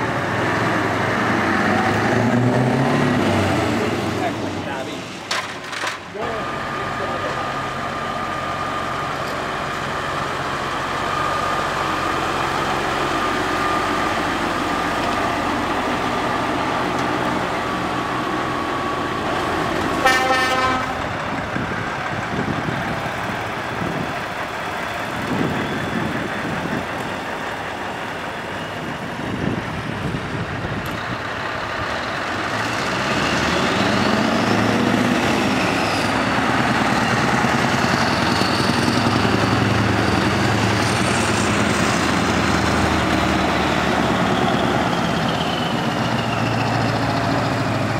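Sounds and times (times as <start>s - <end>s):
engine revving: 0.0s - 5.0s, 31.9s - 47.9s
diesel trucks driving past: 0.0s - 47.9s
truck air horn blast: 20.0s - 21.1s.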